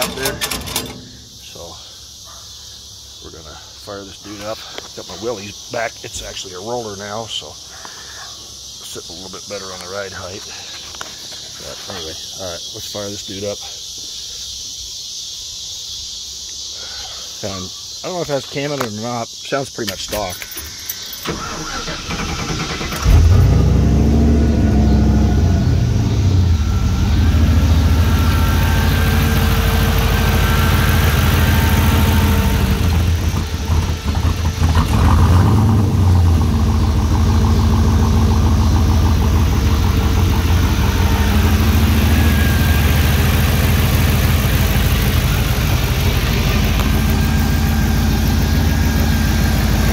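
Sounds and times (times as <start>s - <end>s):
car engine idling: 21.2s - 49.9s
engine revving: 21.3s - 49.9s.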